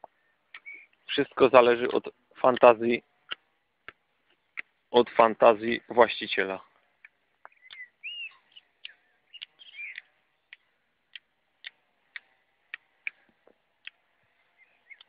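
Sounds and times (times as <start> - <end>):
bird warbling chirps: 0.6 - 1.0, 7.5 - 10.6, 14.6 - 15.0.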